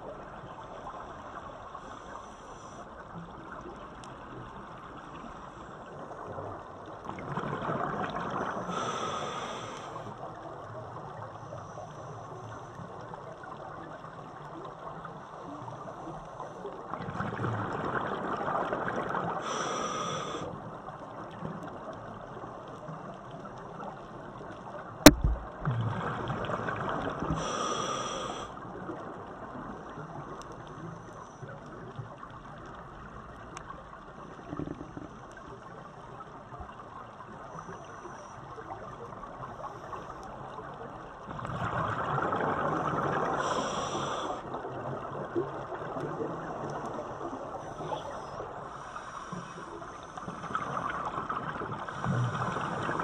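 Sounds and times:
faint steady hiss: 0.0 - 53.0
exhaled bubbles rushing underwater: 6.0 - 11.3, 12.4 - 30.8, 38.5 - 53.0.

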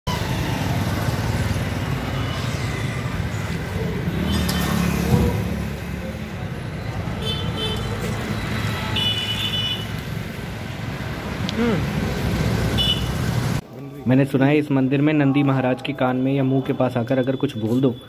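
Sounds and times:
rumble of passing vehicles: 0.1 - 13.6.

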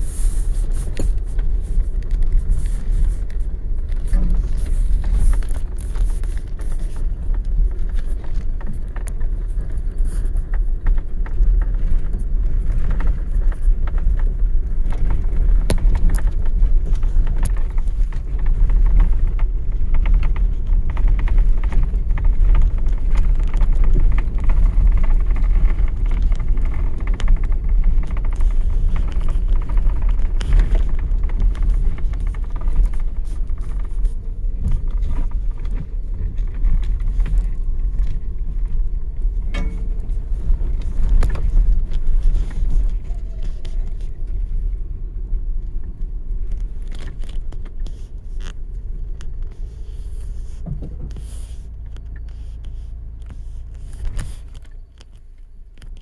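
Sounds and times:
vehicle cabin rumble: 0.0 - 56.0
knocks and rattles: 39.4 - 43.5.

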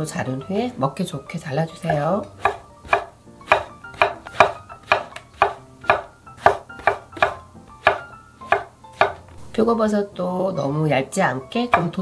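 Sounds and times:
soft background music: 0.0 - 12.0
knife chopping on wooden board: 1.9 - 9.5, 11.7 - 12.0.

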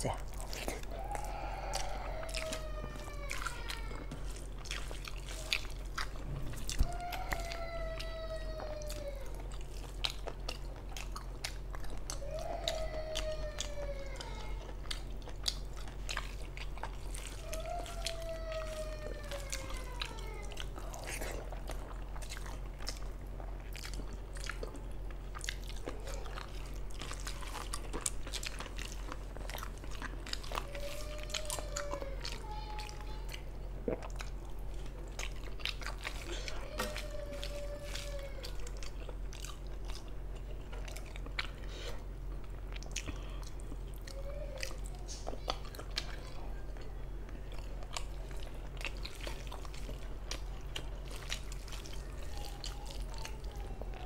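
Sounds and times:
long falling cries: 0.9 - 4.1
wet chewing and lip smacks: 3.3 - 8.1, 8.8 - 13.7, 14.6 - 31.9.

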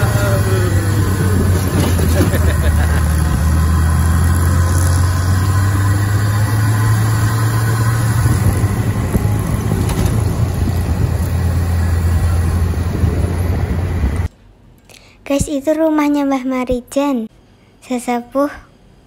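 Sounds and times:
jeep engine running: 0.0 - 14.3
road and wind noise: 0.0 - 14.3.

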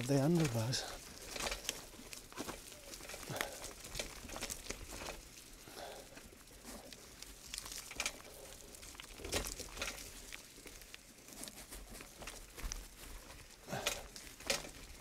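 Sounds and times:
bike knocks and rattles: 0.0 - 5.3, 9.1 - 10.2, 13.6 - 15.0
tyres on leaf litter: 0.0 - 15.0.

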